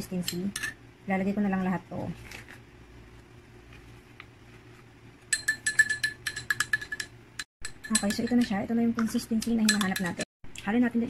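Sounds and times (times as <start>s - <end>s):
spoon clinking in glass: 5.3s - 8.6s, 9.6s - 10.2s.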